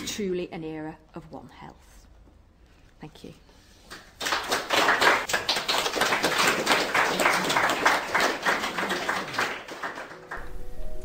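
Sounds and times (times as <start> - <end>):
audience applauding: 4.2 - 10.5.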